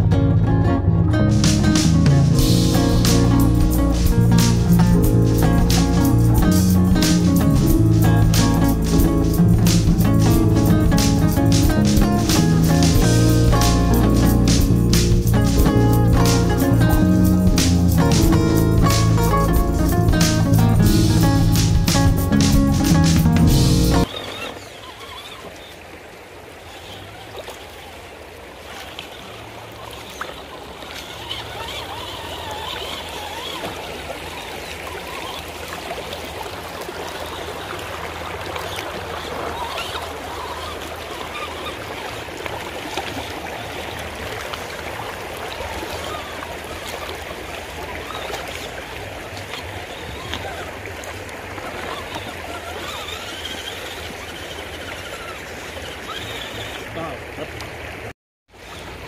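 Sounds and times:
river water rushing: 0.0 - 59.0.

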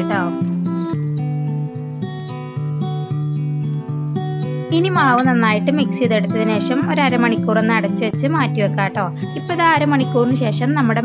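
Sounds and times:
plucked acoustic guitar: 0.0 - 11.0.

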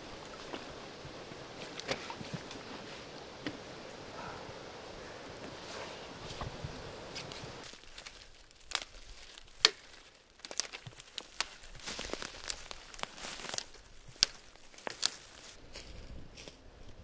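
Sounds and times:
dry twigs snapping: 6.3 - 16.6.

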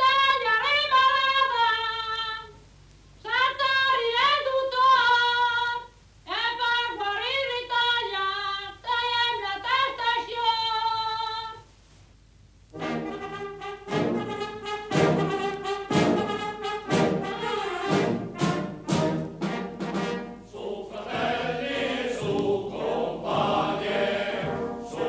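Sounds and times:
high voice singing: 20.5 - 25.0.

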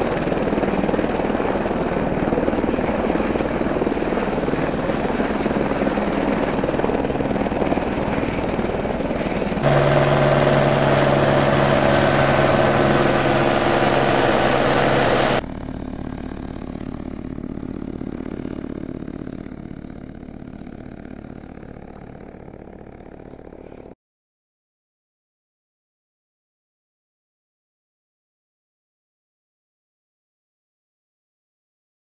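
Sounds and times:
helicopter flying: 0.0 - 24.0.

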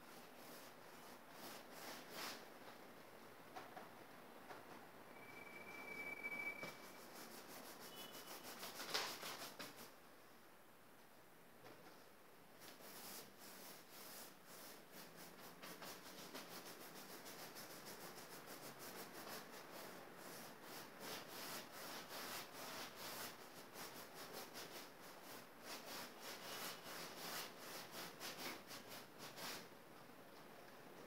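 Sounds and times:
paintbrush scrubbing on canvas: 0.0 - 2.4, 6.8 - 9.9, 12.6 - 29.7.

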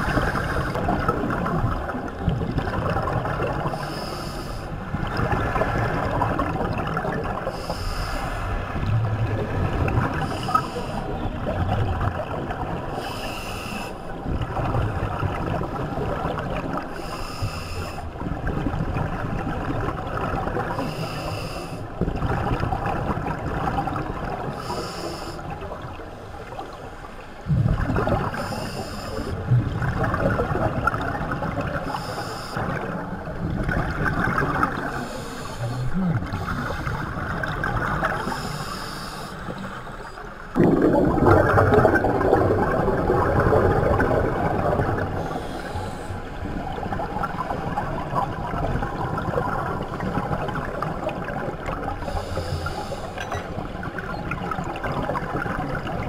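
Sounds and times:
bubbling of exhaled air: 0.0 - 25.9, 27.4 - 56.0
regulator hissing inhale: 3.8 - 4.8, 7.5 - 8.5, 10.2 - 11.1, 13.0 - 14.0, 17.0 - 18.0, 20.8 - 21.9, 24.6 - 25.5, 28.3 - 29.4, 31.8 - 32.6, 34.9 - 36.9, 38.2 - 39.9, 45.2 - 46.3, 52.0 - 53.2.

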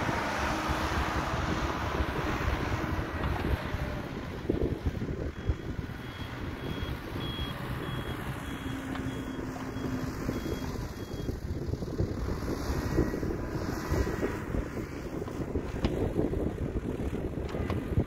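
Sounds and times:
diesel engine rumbling: 0.0 - 18.0
reversing alarm beeping: 5.3 - 11.4.

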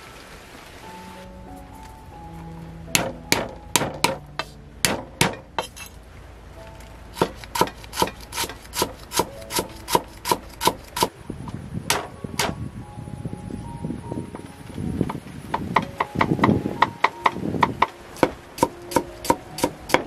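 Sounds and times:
cleaver chopping on wooden block: 3.0 - 5.4, 7.2 - 11.1.

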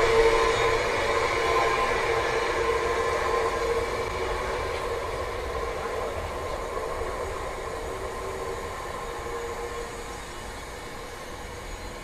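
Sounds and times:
freight train wheels rumbling: 0.0 - 12.0.

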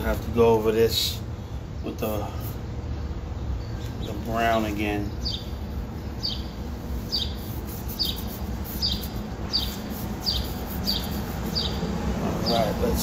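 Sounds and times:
steady low hum: 0.0 - 13.0
bird chirping: 2.8 - 13.0.

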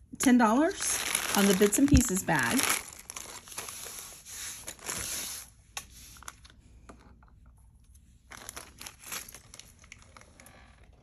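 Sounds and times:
plastic bag crinkling: 0.6 - 5.1, 8.3 - 10.9.

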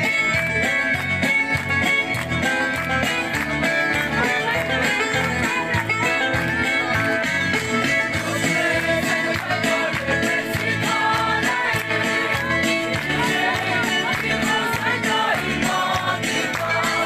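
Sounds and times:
guitar music over a beat: 0.0 - 17.0.

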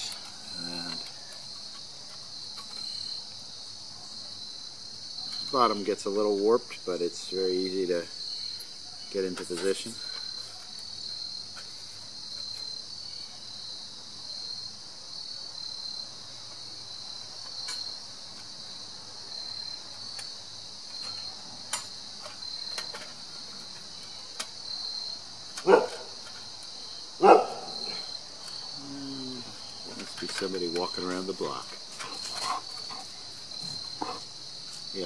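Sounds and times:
crickets chirping: 0.0 - 35.0
dog barking: 25.6 - 26.1, 27.2 - 28.0.

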